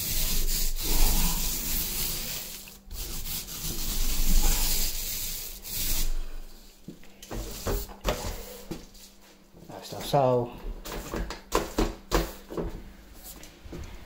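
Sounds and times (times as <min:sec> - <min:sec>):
paint roller rubbing on wall: 0:00.0 - 0:09.1.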